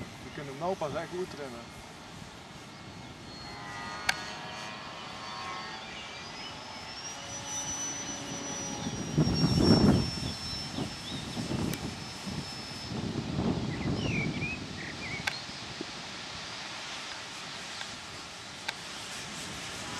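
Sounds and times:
rc plane motor whine: 0.0s - 19.9s
wind buffeting microphone: 8.7s - 16.4s.

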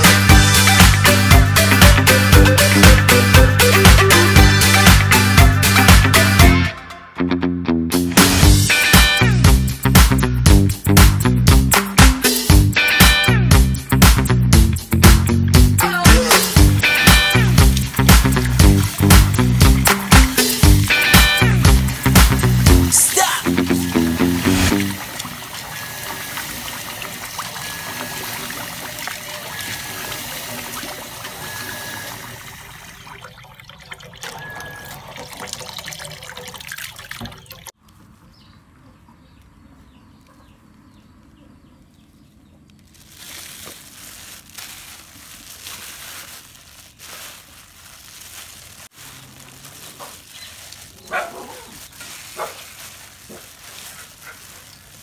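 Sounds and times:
tap water running into metal bowl: 24.7s - 37.7s
plastic bag rustling and scraping: 42.8s - 55.0s.

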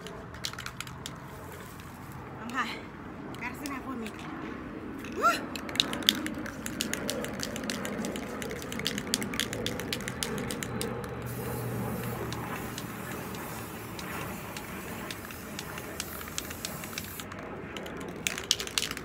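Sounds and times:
spray paint can rattling: 0.0s - 2.0s, 5.0s - 19.0s
spray can hissing: 6.0s - 17.4s.

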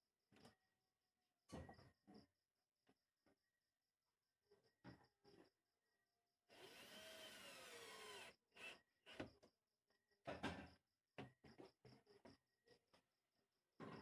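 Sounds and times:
cordless drill driving screws: 6.5s - 9.2s.

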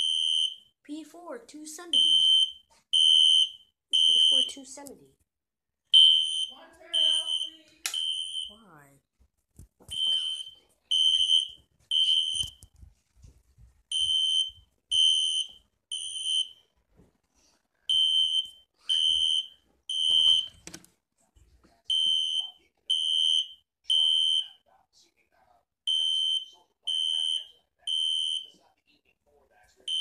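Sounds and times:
fire alarm beeping: 0.0s - 0.7s, 1.9s - 4.8s, 5.9s - 8.6s, 9.9s - 12.6s, 13.9s - 16.6s, 17.9s - 20.6s, 21.9s - 24.6s, 25.9s - 28.5s.

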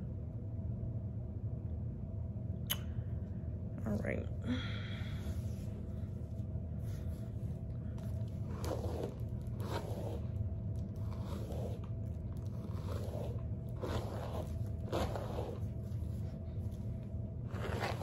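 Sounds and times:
steady low hum: 0.0s - 18.0s
fingers swishing through hair: 8.0s - 18.0s.

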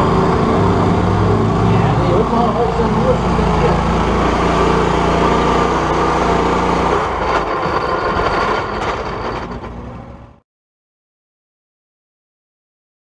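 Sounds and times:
garden tractor engine running hard: 0.0s - 10.4s.

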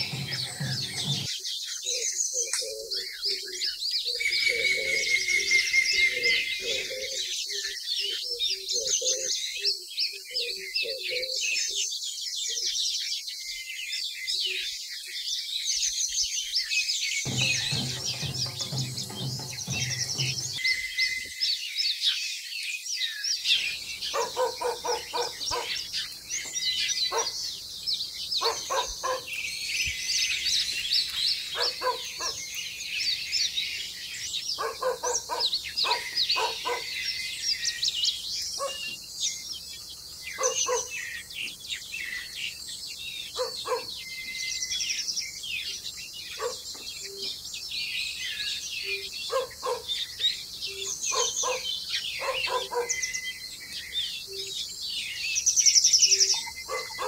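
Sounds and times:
lower fuller bird call: 0.0s - 9.7s.

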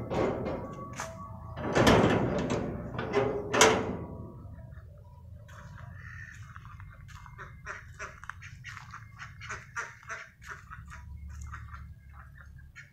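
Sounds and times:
ducks quacking: 5.6s - 12.9s.

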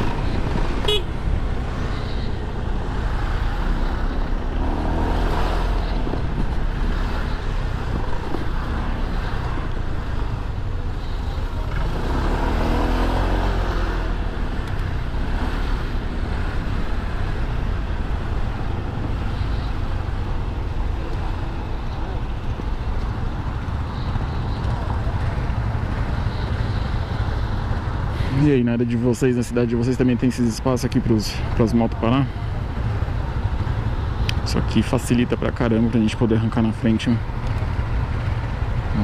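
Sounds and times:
cars and motorcycles: 0.0s - 39.0s
wind rumble on microphone: 5.2s - 7.0s.

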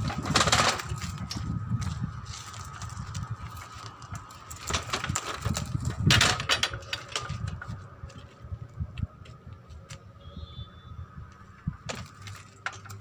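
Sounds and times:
metal clanks and knocks: 0.0s - 1.4s, 4.5s - 7.8s.

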